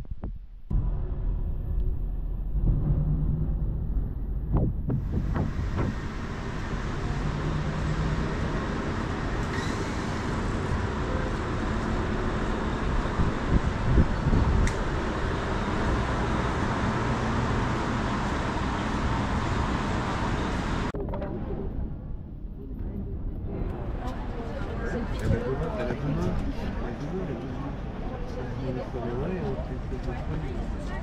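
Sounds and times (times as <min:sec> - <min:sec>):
dull street background: 0:00.0 - 0:31.0
cars passing on wet road: 0:05.5 - 0:20.9.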